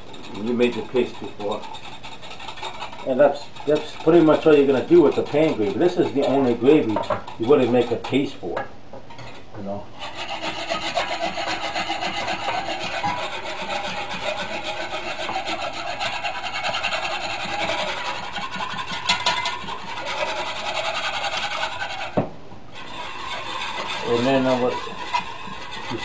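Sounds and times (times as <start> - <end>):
whisk scraping in roasting pan: 0.0 - 8.6, 9.2 - 26.0.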